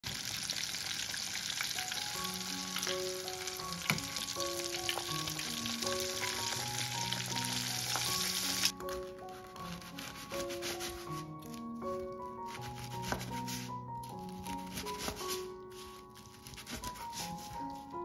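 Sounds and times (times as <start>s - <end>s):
chicken deep-frying in oil: 0.0s - 8.7s
soft background music: 1.6s - 18.0s.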